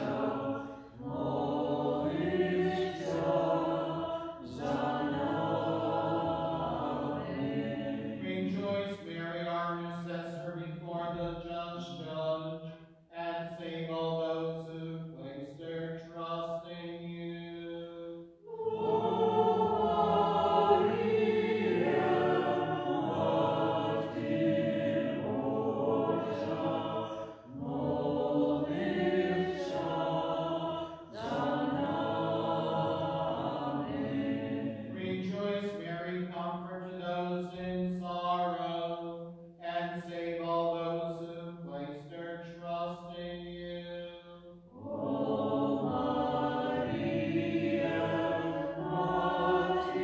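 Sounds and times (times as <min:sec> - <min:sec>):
voices singing in harmony: 0:00.0 - 0:10.1, 0:17.3 - 0:38.8, 0:43.8 - 0:50.0
single voice chanting: 0:30.9 - 0:32.0.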